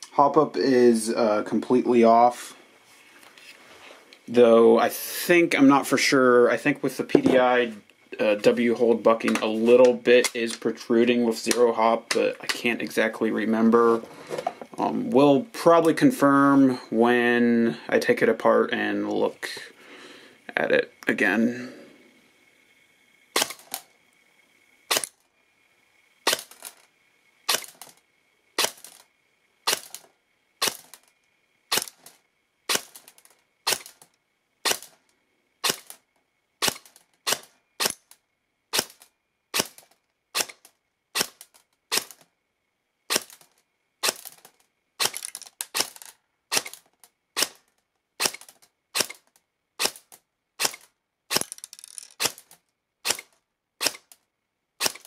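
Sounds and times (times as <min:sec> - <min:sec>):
airsoft gun single shots: 0:23.4 - 0:23.8, 0:35.6 - 0:35.9, 0:48.2 - 0:49.2, 0:49.8 - 0:51.6, 0:54.8 - 0:55.0.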